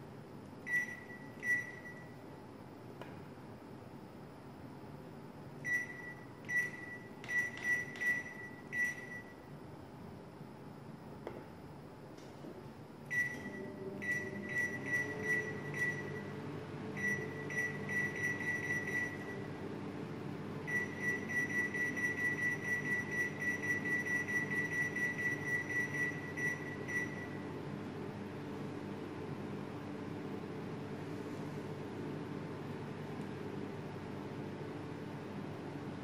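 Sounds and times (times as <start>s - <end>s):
microwave control panel beeps: 0.6s - 2.2s, 5.6s - 9.5s, 13.1s - 16.4s, 17.0s - 19.5s, 20.6s - 27.4s.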